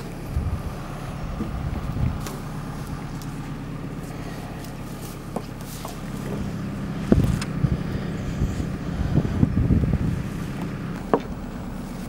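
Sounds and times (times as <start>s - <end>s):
boat engine idling: 0.0s - 12.0s.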